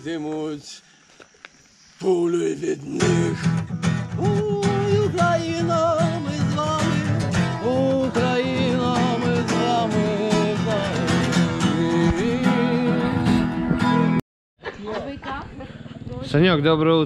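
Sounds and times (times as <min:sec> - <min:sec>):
person singing with vibrato: 0:02.1 - 0:13.6
guitar accompaniment: 0:02.9 - 0:14.2.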